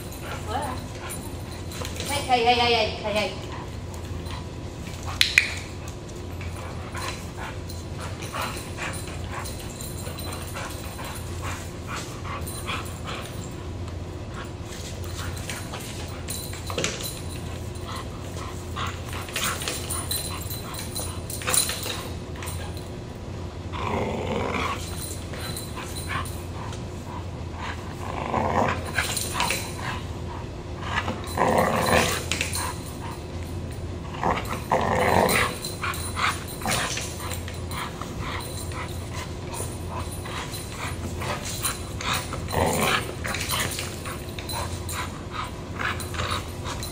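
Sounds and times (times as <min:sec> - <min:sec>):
dog growling: 0:23.7 - 0:25.6, 0:27.7 - 0:33.2, 0:34.0 - 0:46.9.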